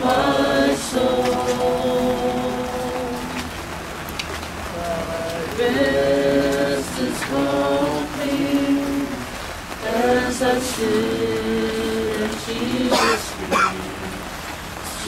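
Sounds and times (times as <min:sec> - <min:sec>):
group singing a hymn: 0:00.0 - 0:15.0.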